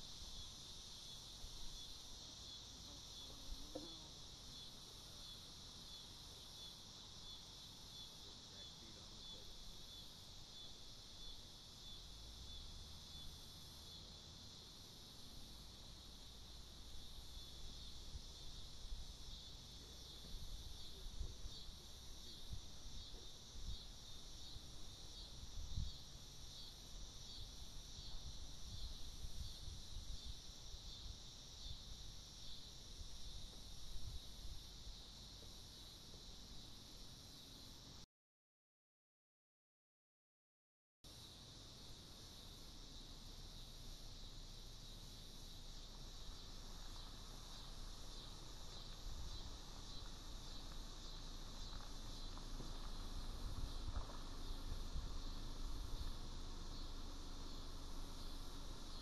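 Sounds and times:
crickets chirping: 0:00.0 - 0:38.0, 0:41.1 - 0:59.0
insect chorus: 0:00.0 - 0:38.0, 0:41.1 - 0:59.0
wind rumble on microphone: 0:28.1 - 0:30.4.

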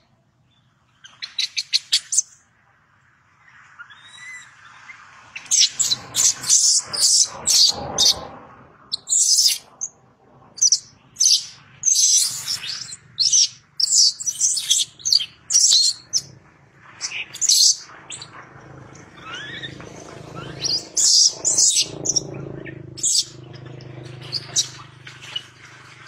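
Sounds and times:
infant monkey screaming: 0:08.9 - 0:09.7, 0:10.6 - 0:16.3, 0:19.2 - 0:23.3.

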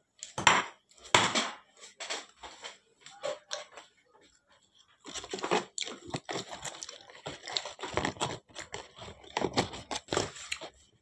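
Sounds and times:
plastic bags crinkling: 0:05.0 - 0:11.0.

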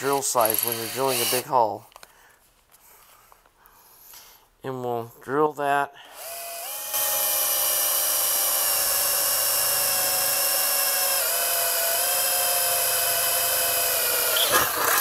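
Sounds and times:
electric drill boring metal: 0:00.0 - 0:01.5, 0:06.1 - 0:15.0
rough grinding noise: 0:00.0 - 0:01.5, 0:13.4 - 0:15.0.

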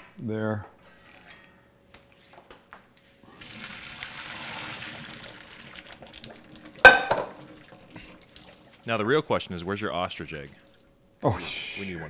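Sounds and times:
water pouring into strainer: 0:03.4 - 0:08.9.

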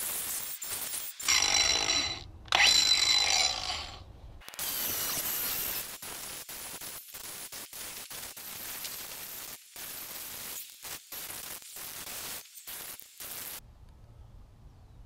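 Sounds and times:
angle grinder grinding: 0:01.2 - 0:04.1
bandsaw whining: 0:01.2 - 0:04.1.

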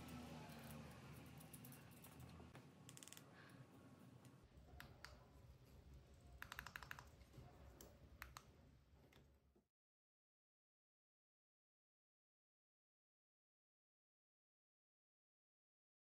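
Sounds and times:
small parts clicking and tapping: 0:00.0 - 0:03.6, 0:06.4 - 0:08.5.

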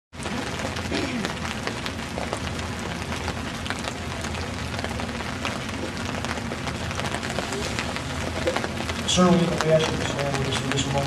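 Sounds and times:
rain falling: 0:00.1 - 0:11.0.

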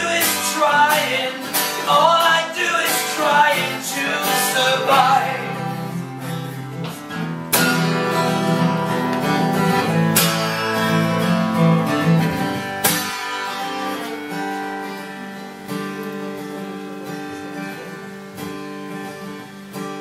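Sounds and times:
acoustic guitar strumming chords: 0:00.0 - 0:20.0.

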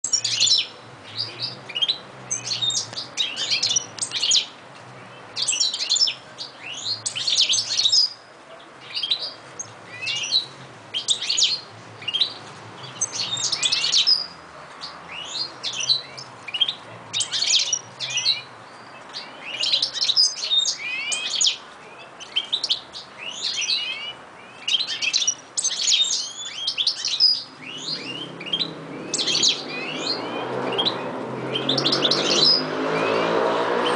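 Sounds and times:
goldfinches singing: 0:22.2 - 0:33.3.

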